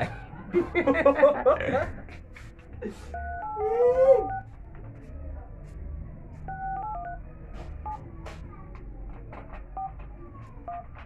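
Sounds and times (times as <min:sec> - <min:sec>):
phone keypad beeps: 0:03.2 - 0:03.6, 0:06.5 - 0:07.2.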